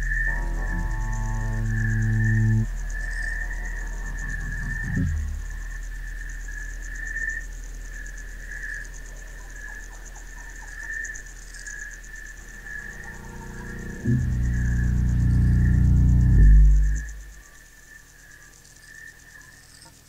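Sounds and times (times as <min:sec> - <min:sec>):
loud low musical drone: 0:00.0 - 0:06.0, 0:12.3 - 0:17.4
faint low hum: 0:00.0 - 0:17.6
insects chirring: 0:00.0 - 0:20.0.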